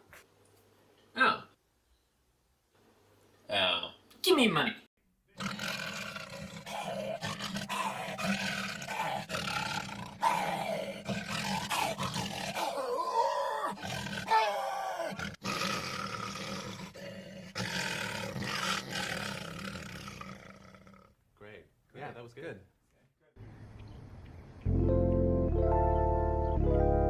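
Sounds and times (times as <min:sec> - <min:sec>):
man roaring into metal trash can: 0:06.6 - 0:17.0.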